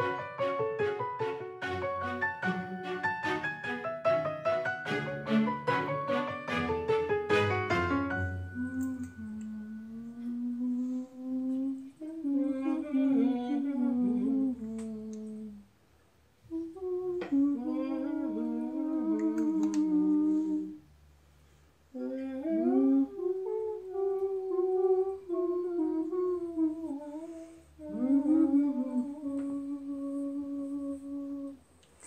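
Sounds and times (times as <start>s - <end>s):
woman humming: 8.2s - 15.7s, 16.5s - 20.8s, 21.9s - 31.7s.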